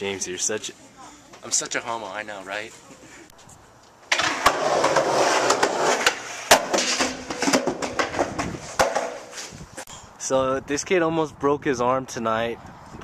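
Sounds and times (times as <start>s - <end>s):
skateboard wheels rolling on concrete: 1.3s - 9.8s
skateboard clacking on ground: 4.1s - 9.4s.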